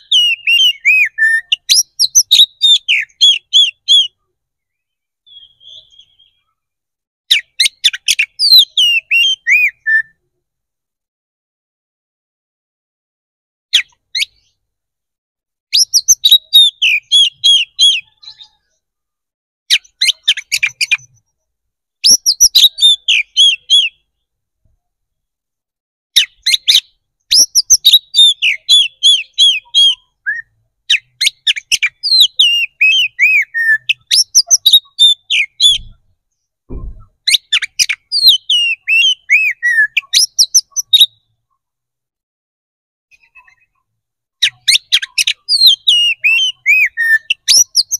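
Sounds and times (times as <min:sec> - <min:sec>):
bird singing chirps and whistles: 0:00.0 - 0:06.6, 0:07.3 - 0:10.2, 0:13.7 - 0:14.6, 0:15.7 - 0:18.8, 0:19.7 - 0:21.2, 0:22.0 - 0:24.1, 0:26.2 - 0:36.0, 0:36.9 - 0:41.3, 0:44.4 - 0:47.9.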